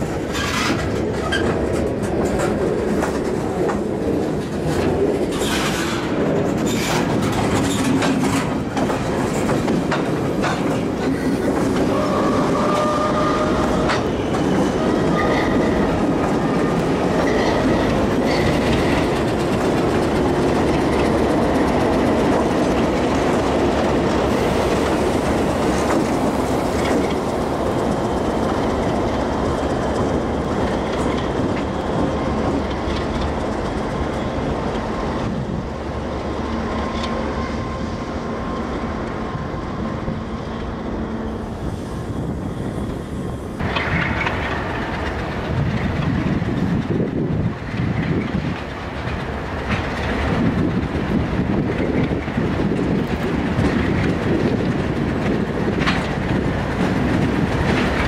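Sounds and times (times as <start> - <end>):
freight train rumbling past: 0.0 - 58.0
train wheels squealing: 15.1 - 18.7.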